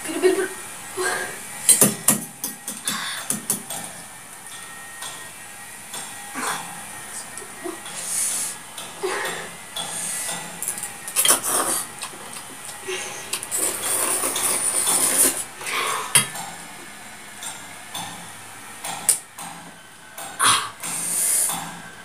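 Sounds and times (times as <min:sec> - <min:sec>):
slurping noodles: 0:11.2 - 0:12.0, 0:12.9 - 0:16.1
fork scraping a metal bowl: 0:13.5 - 0:15.4.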